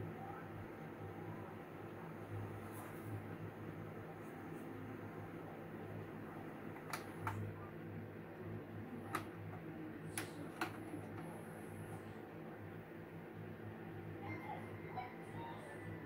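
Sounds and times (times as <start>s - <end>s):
vcr clicking: 6.4s - 7.6s, 8.9s - 11.4s.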